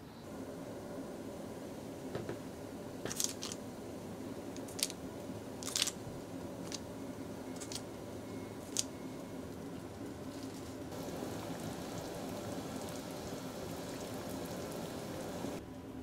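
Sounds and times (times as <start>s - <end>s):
low background noise: 0.0s - 16.0s.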